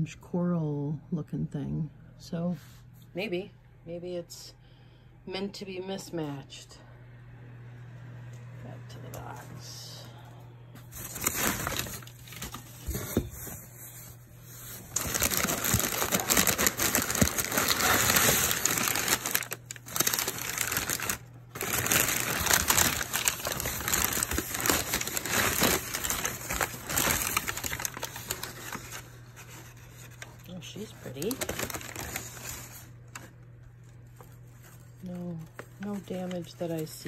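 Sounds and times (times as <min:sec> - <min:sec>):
packing paper crinkling and rustling: 0:10.8 - 0:37.0.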